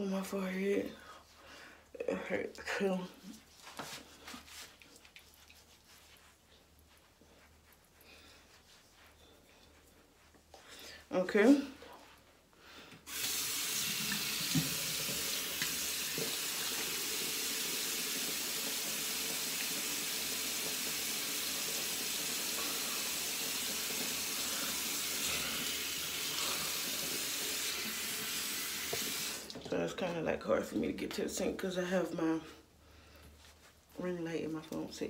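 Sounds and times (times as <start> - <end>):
tap running into a sink: 13.2 - 17.0, 27.6 - 29.7.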